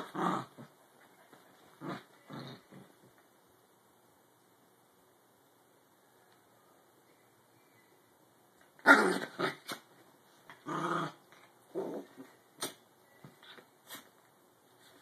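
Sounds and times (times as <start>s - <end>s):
small dogs growling in play: 0.0s - 0.8s, 1.7s - 2.9s, 8.8s - 9.8s, 10.5s - 12.4s.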